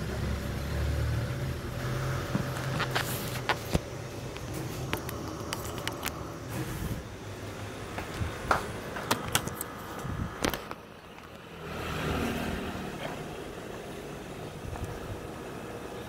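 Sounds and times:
vehicle passing by: 0.0 - 3.4, 11.4 - 15.2
steady background hum: 1.4 - 11.7, 12.5 - 16.0
sharp clicks and knocks: 2.3 - 6.3, 7.9 - 11.4.

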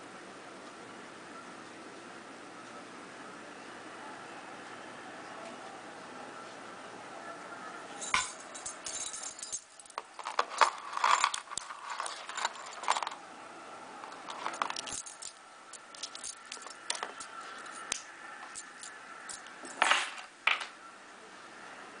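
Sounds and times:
metal ring jangling and clinking: 8.0 - 13.2, 14.1 - 19.8.

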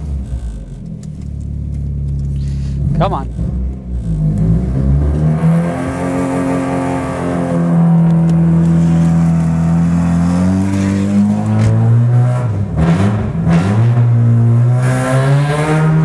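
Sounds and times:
car engine revving hard: 2.6 - 16.0.

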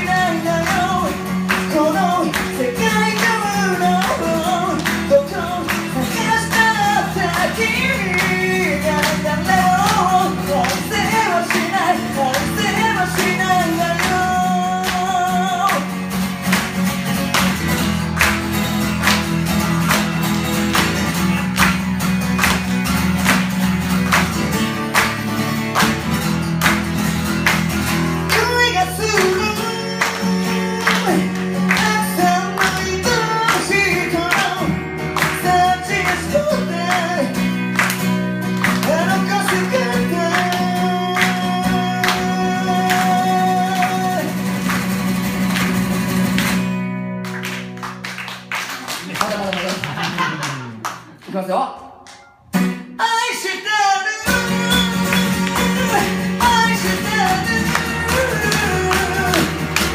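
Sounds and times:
man singing: 0.0 - 16.0, 28.2 - 37.8, 38.4 - 44.6, 52.8 - 59.9
acoustic guitar strumming: 0.0 - 48.7, 51.8 - 59.9.

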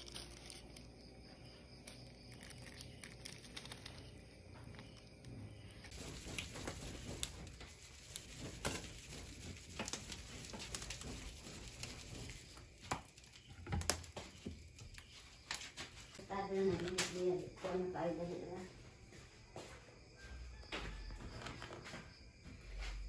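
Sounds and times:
fire crackling and popping: 1.7 - 16.2.

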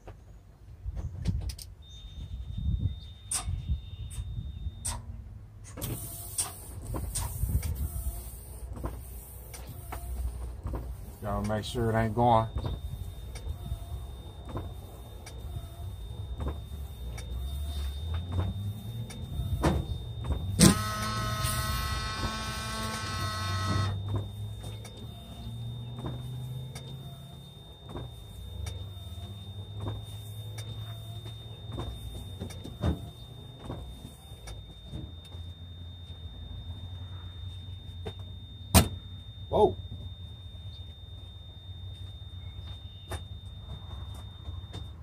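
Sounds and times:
washer pump whining: 18.0 - 34.4
windshield wiper motor running: 18.2 - 34.0.

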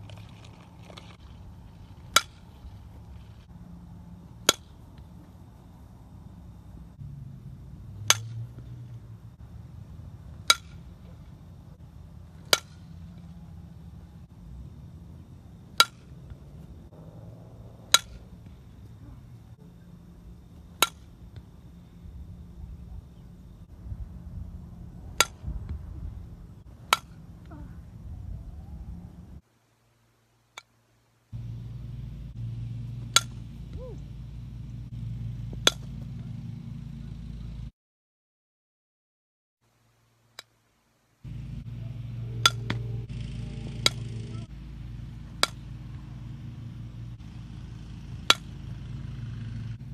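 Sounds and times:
low background rumble: 0.0 - 29.5, 30.9 - 37.7, 40.8 - 49.9
bat hitting softball: 2.0 - 3.2, 4.1 - 5.4, 8.0 - 9.0, 9.9 - 13.8, 15.7 - 17.2, 17.8 - 19.0, 20.6 - 21.6, 25.1 - 25.5, 26.8 - 27.6, 31.4 - 34.7, 35.5 - 36.3, 41.3 - 44.4, 45.2 - 46.6, 47.9 - 49.5
bat pinging on ball: 8.0 - 8.8, 10.4 - 11.3, 12.4 - 13.4, 17.8 - 18.5, 20.7 - 21.2, 33.0 - 34.1, 35.5 - 36.1, 41.8 - 44.5, 45.3 - 45.8.

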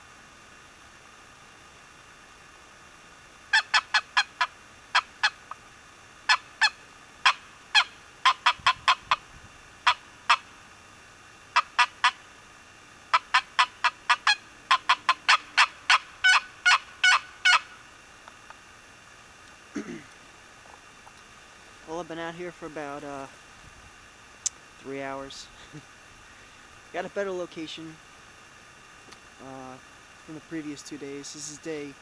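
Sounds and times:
turkey box call yelps: 3.5 - 5.6, 6.2 - 10.6, 11.5 - 12.3, 13.1 - 17.8.

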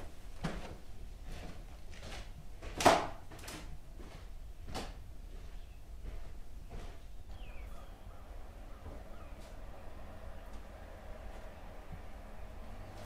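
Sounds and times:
footsteps on a floor: 4.0 - 7.6.

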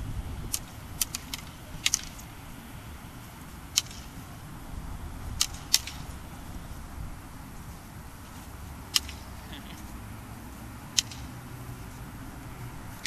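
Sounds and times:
steady low rumble: 0.0 - 13.0
sticks clacking: 0.5 - 2.3, 3.4 - 4.3, 5.3 - 6.2, 8.8 - 9.9, 10.8 - 11.6.

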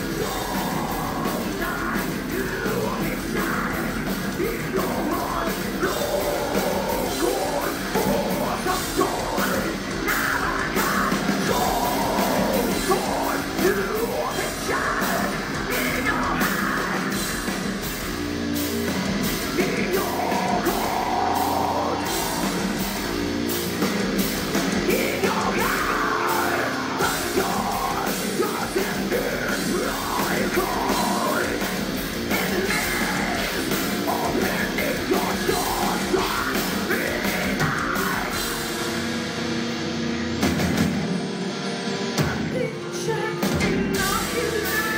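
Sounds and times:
drums: 0.0 - 44.9
electric guitars: 0.0 - 44.9
woman singing: 42.2 - 44.9.

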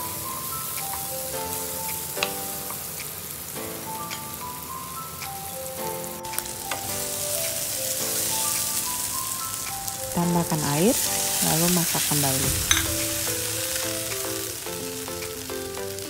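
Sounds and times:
light background melody: 0.0 - 16.0
vegetables sizzling in hot oil: 0.0 - 16.0.

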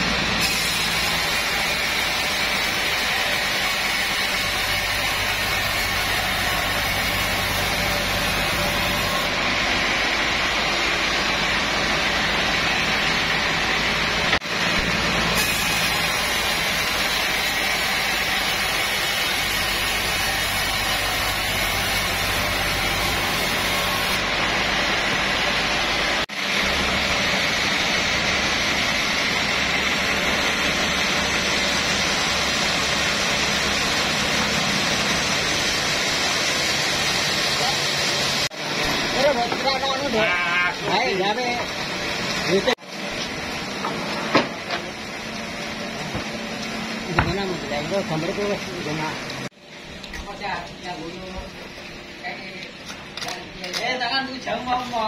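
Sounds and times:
band saw sawing a log: 0.0 - 42.8.

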